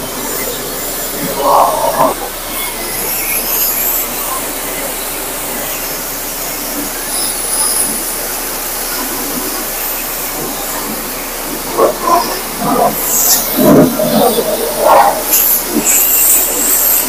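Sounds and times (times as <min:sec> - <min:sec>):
pressure washer spray hissing: 0:00.0 - 0:17.0.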